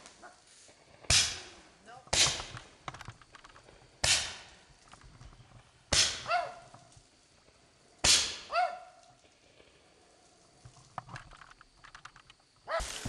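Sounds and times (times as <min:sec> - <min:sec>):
fireworks bangs: 0:12.8 - 0:13.0.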